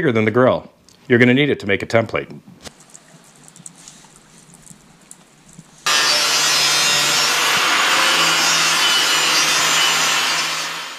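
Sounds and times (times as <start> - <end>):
power tool cutting: 5.9 - 10.9.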